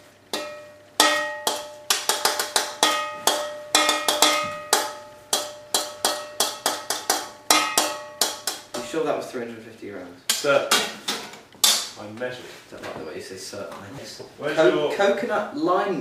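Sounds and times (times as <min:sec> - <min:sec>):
spoon knocking on metal pan: 0:00.3 - 0:08.9.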